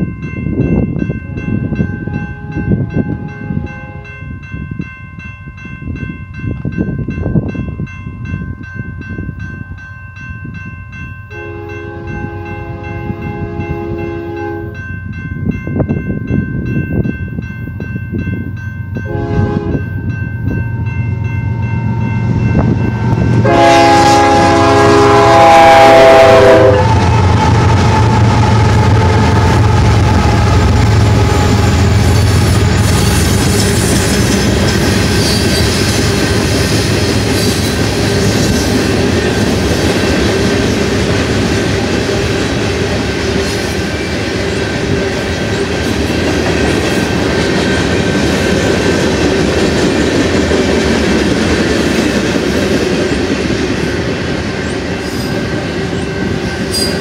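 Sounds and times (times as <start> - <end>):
crossing bell ringing: 0.0 - 57.0
freight train rumbling past: 0.0 - 57.0
train horn blasts: 2.0 - 4.1, 11.3 - 14.8, 19.0 - 19.8, 23.0 - 29.3.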